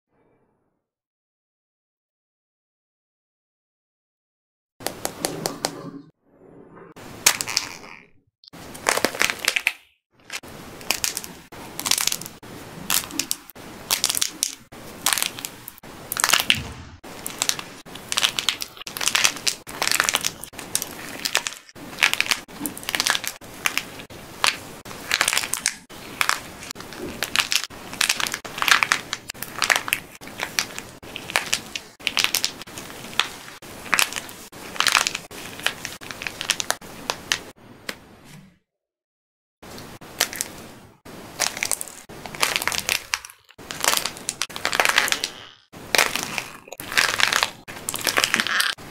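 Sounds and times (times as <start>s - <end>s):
plaster shell cracking: 41.4s - 48.9s.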